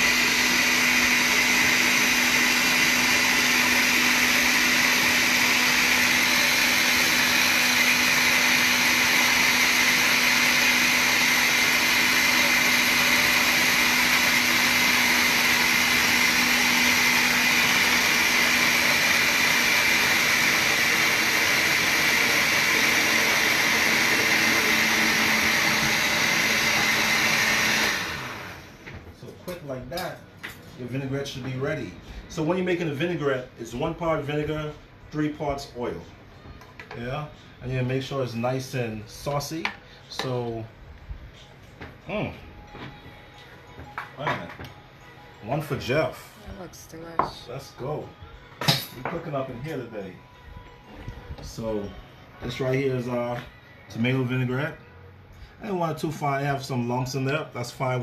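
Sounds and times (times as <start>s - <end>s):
blender running: 0.0s - 28.9s.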